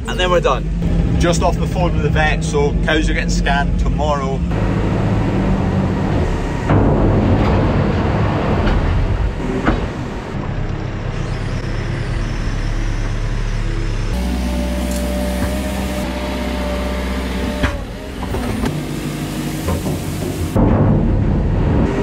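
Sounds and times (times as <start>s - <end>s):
diesel engine running: 0.0s - 22.0s
bucket scooping wood chip: 18.3s - 20.6s.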